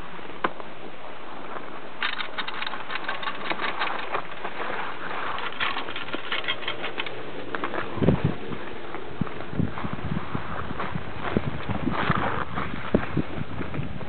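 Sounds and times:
ski lift rope rattling over rollers: 2.0 - 8.0.

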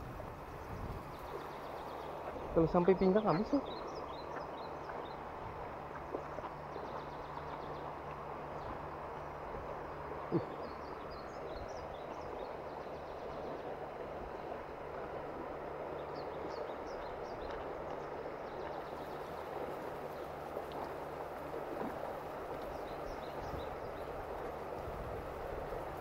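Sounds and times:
water rushing over gravel: 16.7 - 26.0.

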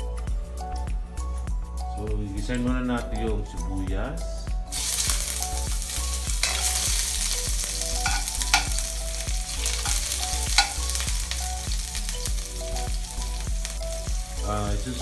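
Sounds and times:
onions sizzling in hot oil: 4.7 - 15.0
spatula clicking on wok: 9.8 - 11.0.

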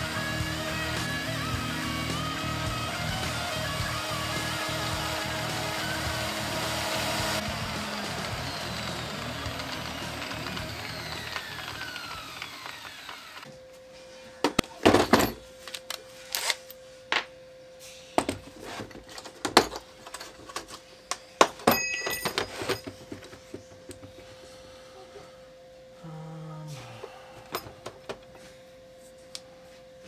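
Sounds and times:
sanding disc whine spinning down: 0.0 - 13.6
short ringing clinks: 21.7 - 22.6.

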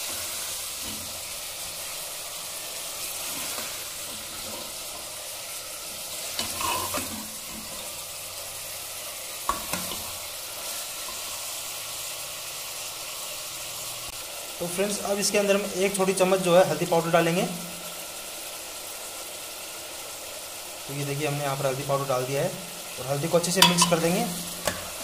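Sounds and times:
meat sizzling in oil: 0.0 - 25.0
ladle scraping and knocking pot: 6.4 - 7.9, 23.6 - 24.9.

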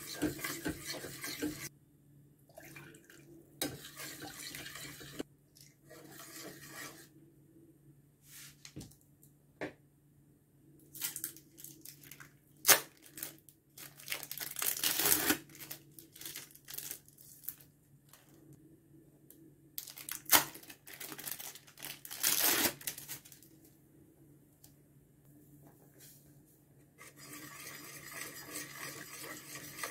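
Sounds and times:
plastic bag crinkling: 11.0 - 18.2, 19.8 - 23.5.

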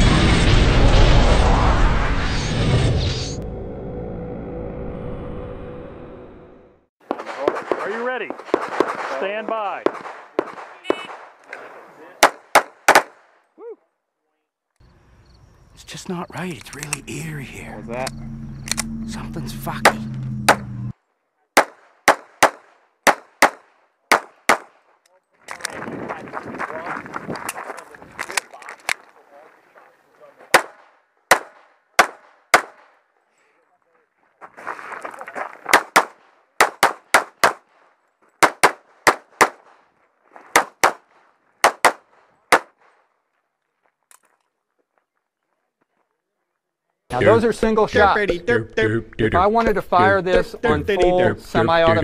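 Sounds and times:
pistol shots: 7.1 - 11.4, 12.2 - 13.2, 21.6 - 24.8, 30.5 - 33.0, 35.7 - 37.7, 38.4 - 39.8, 40.5 - 42.9
steady hum: 16.3 - 20.9.

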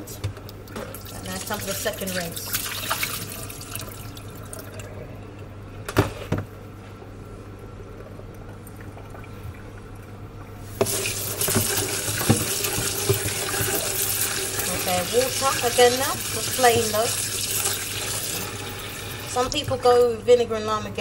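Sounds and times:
tap water running into basin: 0.7 - 4.9, 10.8 - 20.0
water draining into steel sink: 0.8 - 4.9, 10.8 - 19.9.

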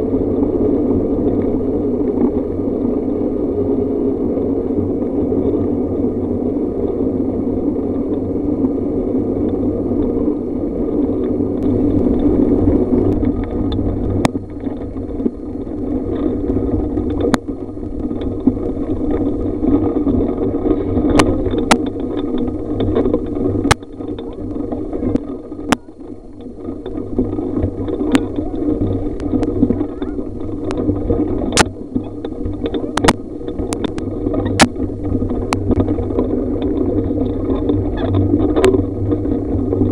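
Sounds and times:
road noise: 0.0 - 39.9
wind noise: 0.0 - 39.9.

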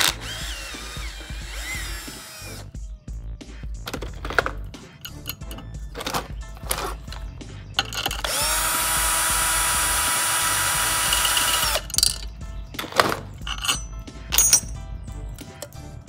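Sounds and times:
cordless drill spinning: 0.0 - 2.7, 5.2 - 12.2
metal tool clicks and knocks: 3.9 - 8.5, 11.0 - 14.8, 15.4 - 15.9.

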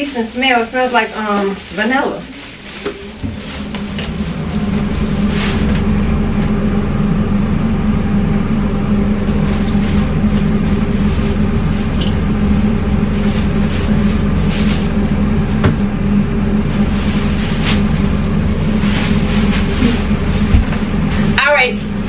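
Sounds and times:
plastic bag crinkling: 0.0 - 5.9
low motor drone: 2.7 - 22.0.

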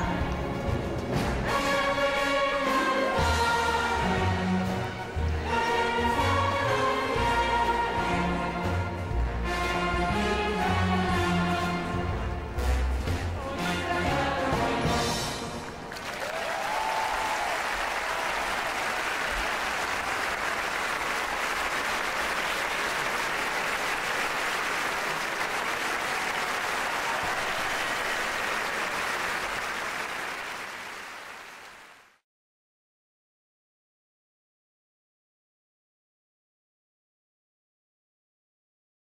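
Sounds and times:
crowd applauding: 15.6 - 32.2.

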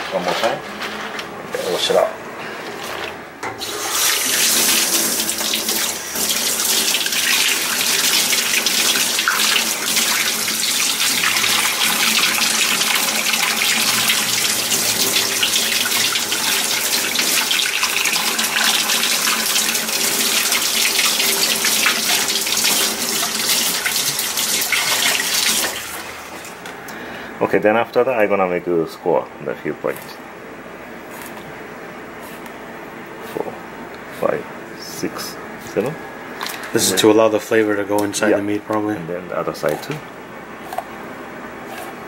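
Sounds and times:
faucet running into steel sink: 3.6 - 26.4.

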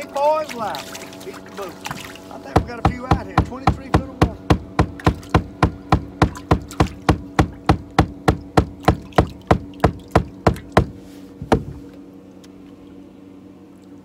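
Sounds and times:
wooden stick knocking on boat deck: 2.5 - 11.8.

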